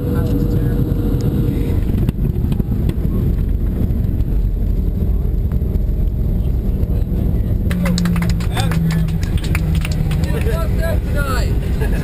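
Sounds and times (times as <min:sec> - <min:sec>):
airliner cabin rumble: 0:00.0 - 0:12.0.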